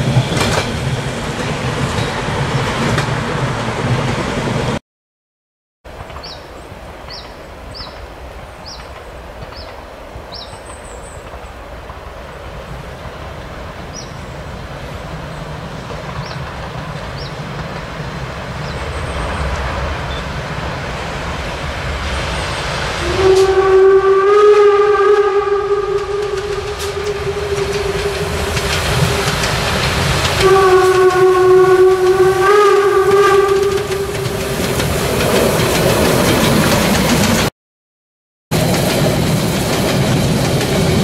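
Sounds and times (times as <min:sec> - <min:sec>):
steam locomotive rumble: 0:00.0 - 0:04.8, 0:05.9 - 0:37.5, 0:38.5 - 0:41.0
steam whistle blasts: 0:23.0 - 0:29.7, 0:30.3 - 0:34.9.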